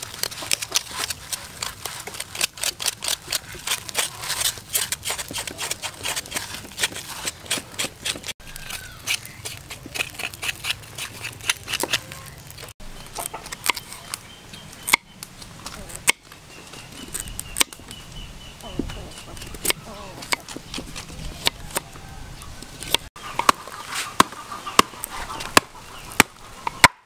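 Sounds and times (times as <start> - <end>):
knife scraping charred skin: 0.0 - 18.0, 18.6 - 22.0, 22.6 - 26.9
charcoal fire crackling: 0.0 - 27.0.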